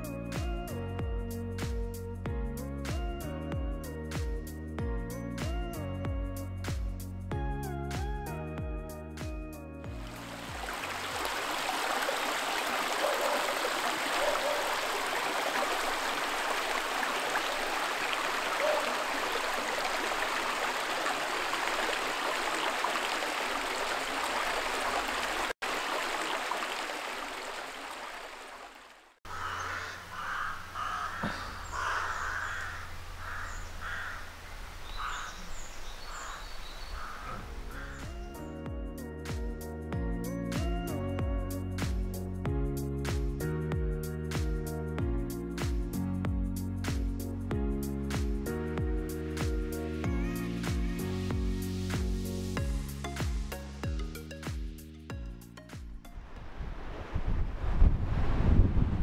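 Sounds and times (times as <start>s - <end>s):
stream rushing over stones: 10.0s - 29.2s
birds cawing: 18.5s - 19.3s, 29.3s - 38.4s.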